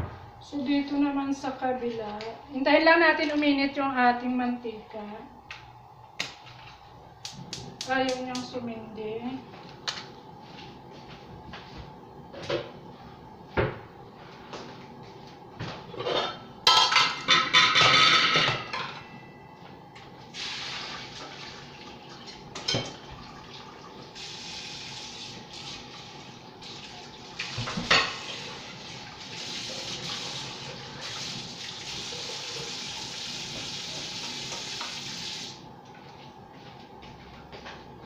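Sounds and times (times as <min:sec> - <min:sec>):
water running from a tap: 0:20.3 - 0:35.6.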